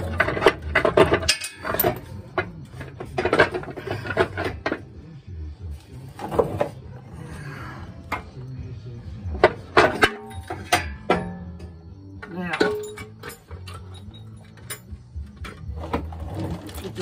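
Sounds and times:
metal clinking and clattering: 0.0s - 4.9s, 9.3s - 17.0s.

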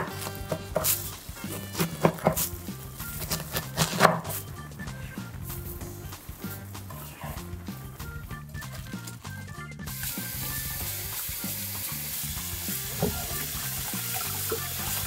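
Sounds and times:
knife chopping on wooden board: 0.0s - 4.4s
background music: 0.0s - 15.0s.

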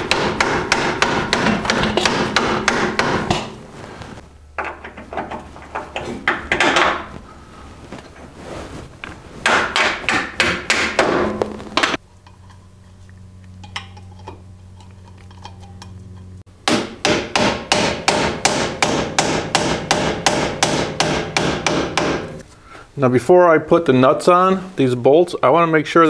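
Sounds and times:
hammer striking metal: 0.0s - 3.6s, 9.4s - 12.0s, 16.6s - 22.4s
steady low hum: 0.0s - 26.0s.

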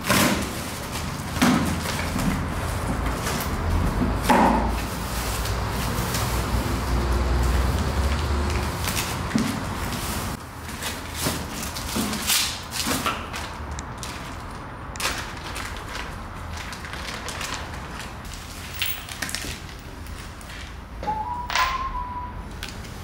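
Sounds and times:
parts handled in cardboard box: 0.0s - 6.6s
plastic packaging rustling: 0.0s - 20.8s.

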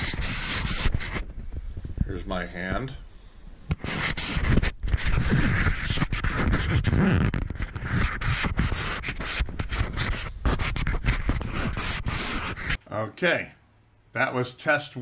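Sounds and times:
fingers scraping plastic case: 0.0s - 1.2s, 3.7s - 12.8s.

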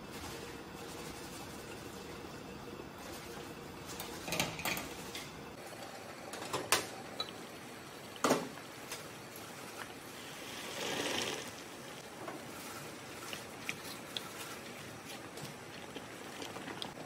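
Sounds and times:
salt hissing in boiling water: 7.6s - 17.0s.

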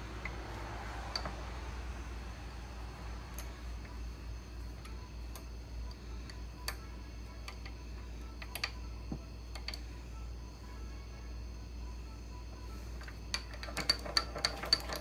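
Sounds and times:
steady low hum: 0.0s - 15.0s
lathe handwheel clicking: 13.0s - 15.0s.

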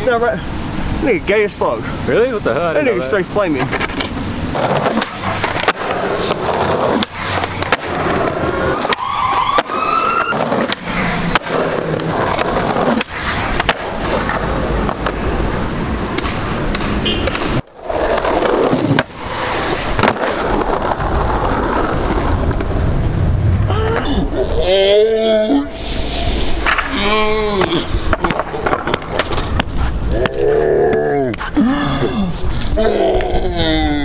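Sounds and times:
skateboard wheels rolling on concrete: 0.0s - 24.8s, 25.6s - 34.0s
skateboard clacks: 3.5s - 19.3s, 19.9s - 23.0s, 26.5s - 30.4s.

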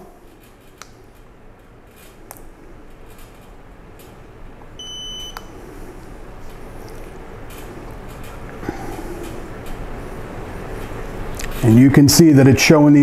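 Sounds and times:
high beep: 4.8s - 5.5s.

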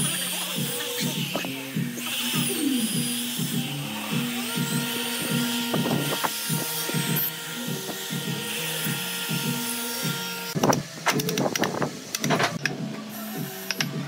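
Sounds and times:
electric drill boring into wood: 0.0s - 10.6s.

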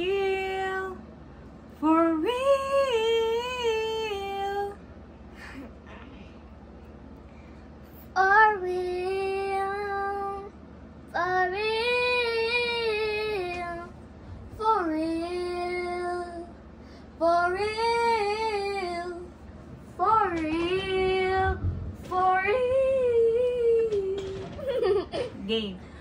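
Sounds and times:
girl singing unaccompanied: 8.0s - 16.6s, 17.2s - 24.5s.

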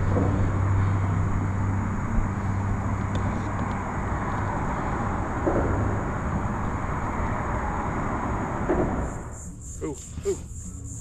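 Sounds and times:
highway traffic noise: 0.0s - 11.0s
low hum: 0.0s - 11.0s.

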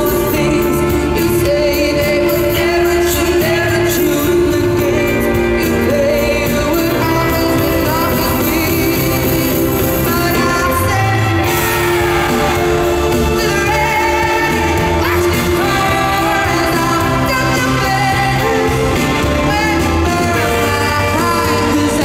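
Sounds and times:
live pop band playing: 0.0s - 22.0s
woman singing into a microphone: 0.0s - 22.0s.

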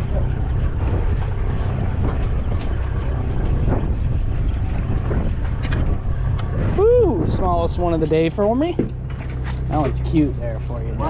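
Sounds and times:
boat engine rumbling: 0.0s - 11.0s
wind buffeting microphone: 0.0s - 11.0s.

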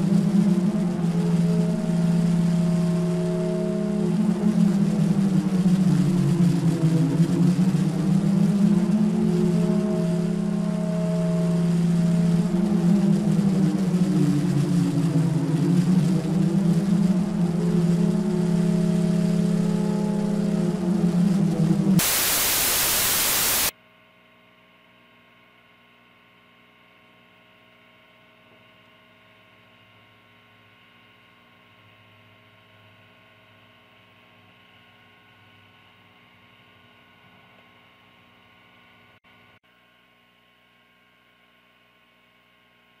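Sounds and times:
low droning tone: 0.0s - 23.7s
loud tv static: 22.0s - 23.7s.

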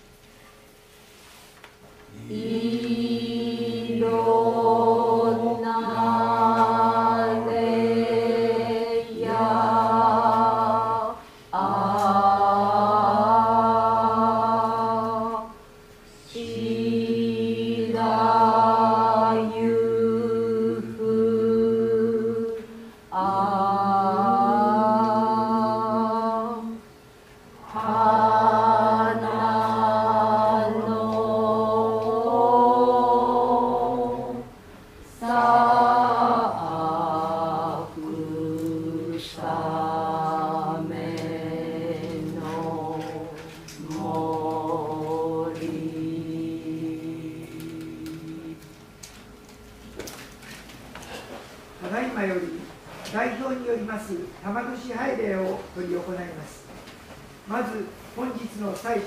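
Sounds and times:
voices chanting long held notes: 2.1s - 26.8s, 27.6s - 48.8s.

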